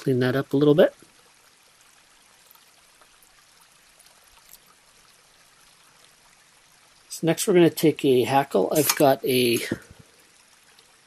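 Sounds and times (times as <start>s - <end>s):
faint small ticks: 1.0s - 7.1s, 9.7s - 11.0s.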